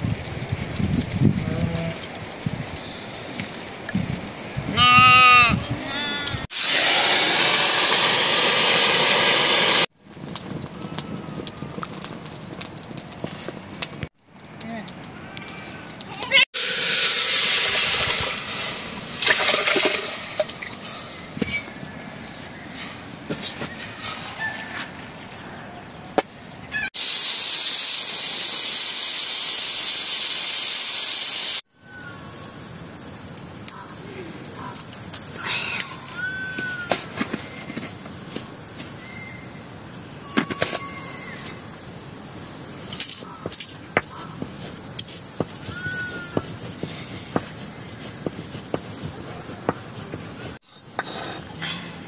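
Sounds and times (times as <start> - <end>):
pressure cooker steam hiss: 6.5 - 9.9, 16.6 - 21.7, 27.0 - 32.1, 41.2 - 50.6.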